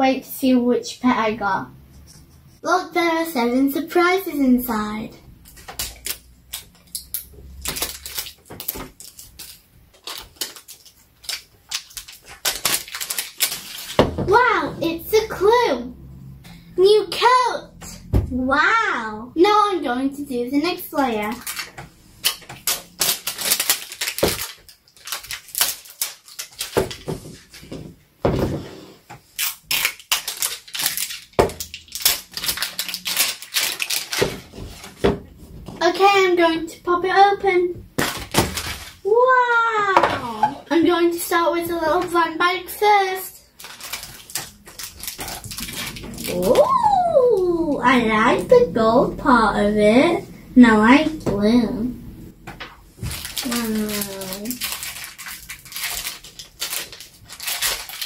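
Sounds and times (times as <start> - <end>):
plastic wrapping crinkling and tearing: 5.4 - 14.1, 21.0 - 27.7, 29.2 - 35.1, 38.0 - 39.2, 42.9 - 48.5, 53.0 - 58.0.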